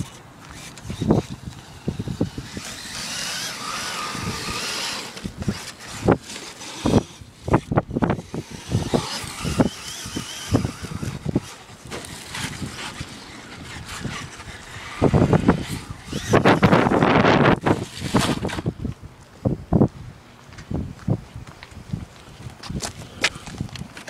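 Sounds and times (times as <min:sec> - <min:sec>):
toy truck motor whining: 0:00.0 - 0:18.7.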